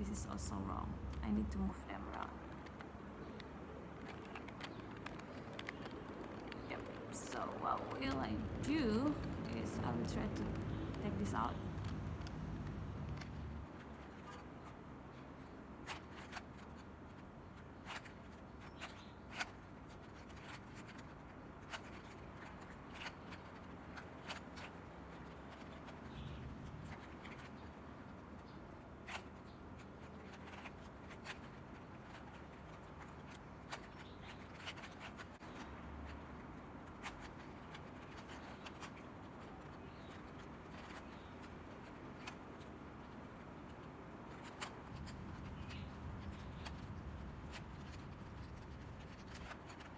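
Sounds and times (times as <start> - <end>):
puzzle cube clicking: 2.0 - 14.4.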